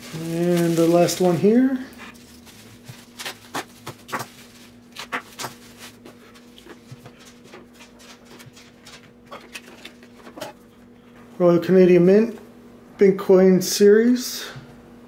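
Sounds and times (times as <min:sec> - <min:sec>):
plastic bag crinkling: 0:00.0 - 0:10.5
faint steady hum: 0:00.0 - 0:15.0.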